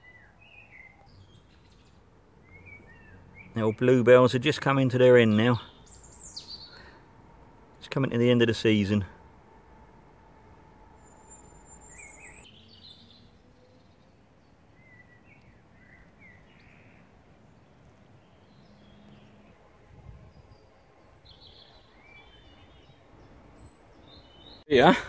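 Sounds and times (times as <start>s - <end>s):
small birds chirping and whistling: 0.0s - 3.9s, 5.3s - 7.0s, 11.0s - 14.2s, 14.8s - 19.4s, 20.2s - 24.7s.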